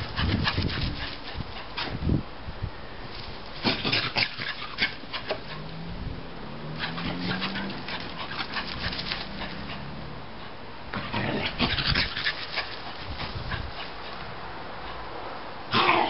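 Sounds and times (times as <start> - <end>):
dog panting: 0.0 - 1.9, 4.2 - 5.8, 6.7 - 10.6, 11.6 - 15.1
rustling and scratching in leaves: 3.1 - 5.5, 6.7 - 9.7, 11.2 - 14.3.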